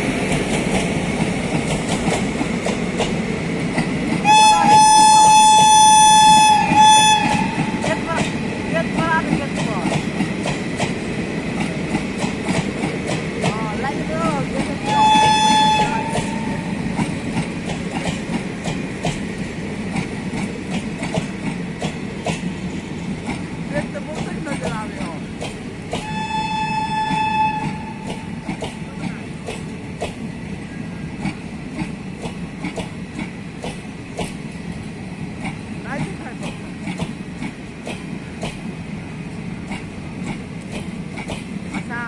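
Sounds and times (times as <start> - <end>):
train coaches rumbling: 0.0 - 42.0
locomotive horn blast: 4.2 - 7.9, 14.8 - 16.8, 26.0 - 28.1
wheels clicking over rail joints: 6.7 - 30.4, 31.1 - 42.0.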